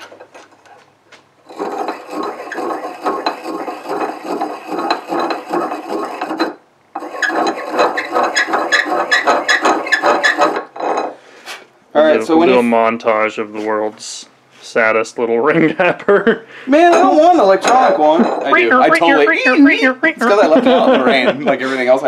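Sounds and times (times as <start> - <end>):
filing piston ring scraping: 1.5 - 11.2.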